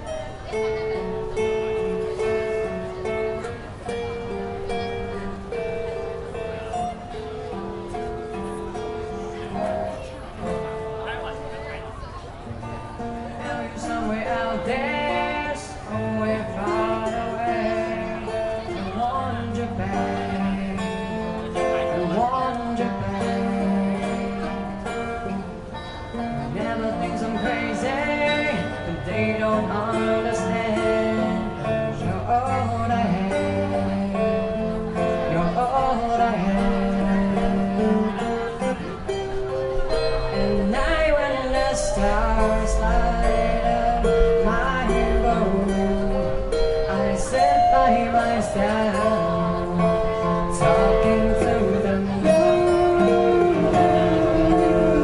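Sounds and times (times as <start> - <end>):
acoustic guitars playing: 0.0 - 55.0
man singing into a microphone: 12.9 - 55.0.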